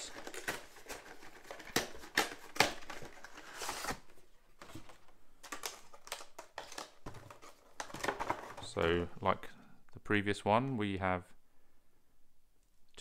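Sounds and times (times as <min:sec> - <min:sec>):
cardboard sliding rustle: 0:03.2 - 0:04.1.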